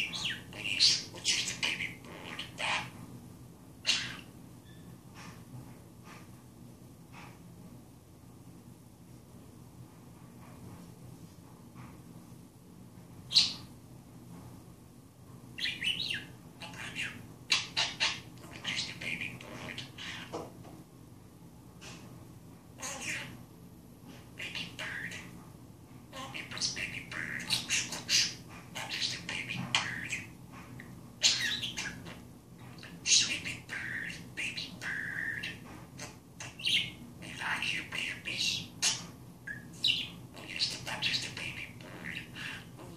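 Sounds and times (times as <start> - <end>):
budgerigar chirping: 0.0 - 2.9, 3.9 - 4.8, 13.3 - 13.7, 15.6 - 20.3, 31.2 - 32.2, 36.4 - 42.7.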